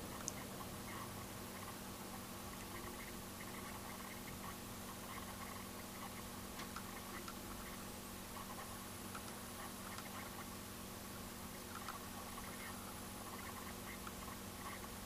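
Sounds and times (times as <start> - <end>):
steady low hum: 0.0 - 15.0
small clicks and ticks: 0.2 - 1.0, 2.6 - 7.8, 8.4 - 10.5, 11.5 - 12.7.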